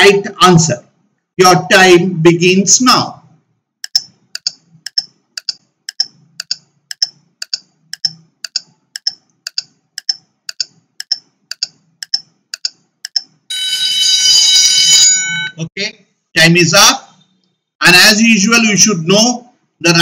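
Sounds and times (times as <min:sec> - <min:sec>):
clock ticking: 0:03.8 - 0:13.5.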